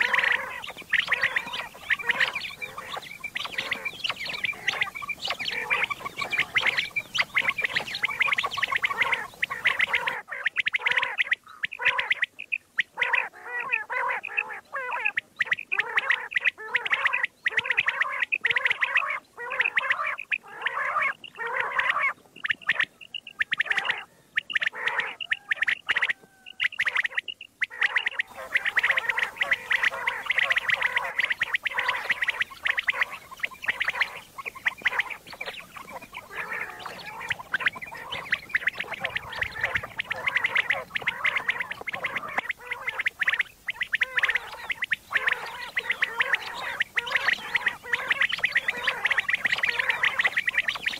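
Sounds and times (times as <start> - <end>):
quail calling: 0.0 - 50.9
recording hiss: 28.2 - 50.9.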